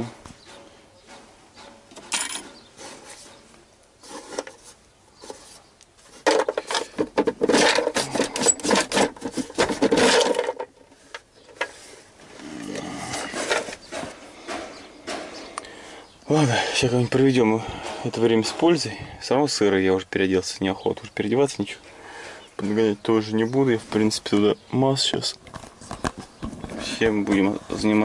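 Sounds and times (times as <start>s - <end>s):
metal parts clinking and rattling: 1.9s - 2.6s, 6.2s - 10.8s.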